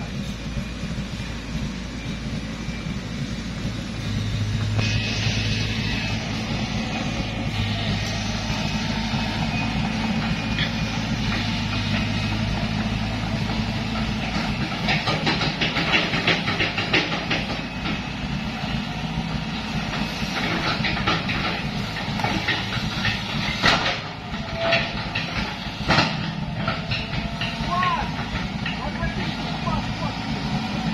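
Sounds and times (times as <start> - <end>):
engine humming: 0.0 - 30.9
excavator tracks clanking: 0.0 - 30.9.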